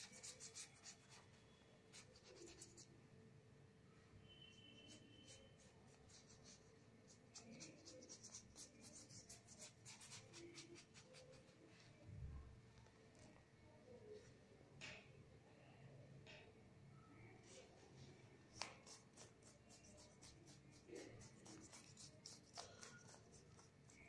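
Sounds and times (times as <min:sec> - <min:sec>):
paintbrush strokes on paper: 0:04.4 - 0:12.0, 0:17.4 - 0:24.0.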